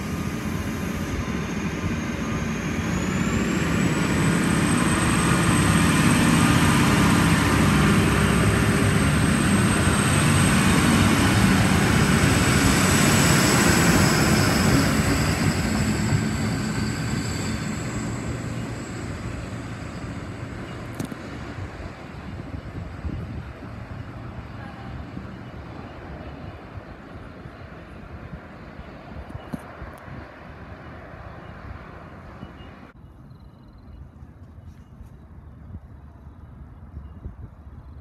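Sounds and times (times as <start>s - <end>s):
train wheels rumbling on rails: 0.0s - 26.6s
diesel train engines droning: 0.0s - 34.0s.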